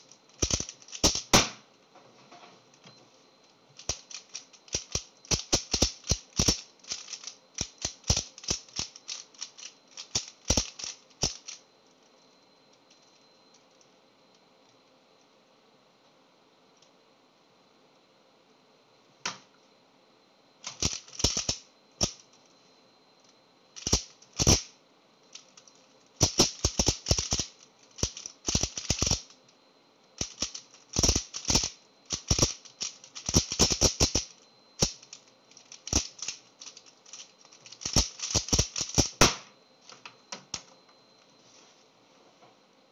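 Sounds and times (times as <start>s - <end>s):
plastic puzzle cube clacking: 0.4s - 1.3s, 3.8s - 11.6s, 20.7s - 22.2s, 23.8s - 24.7s, 26.2s - 29.3s, 30.2s - 39.2s.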